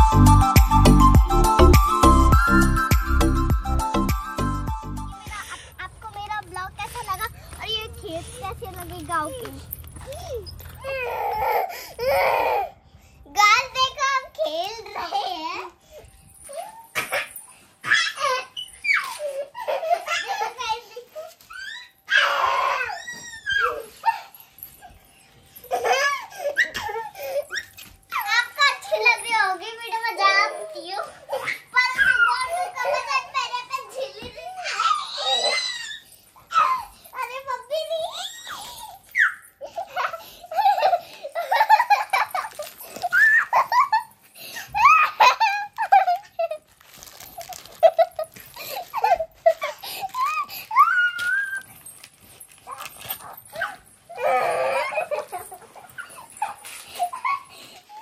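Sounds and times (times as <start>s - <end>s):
children shrieking and squealing: 3.9s - 14.0s, 14.8s - 52.0s, 52.6s - 58.0s
child screaming: 21.5s - 24.0s, 31.4s - 33.1s, 34.6s - 36.9s, 38.0s - 39.4s, 50.2s - 51.7s.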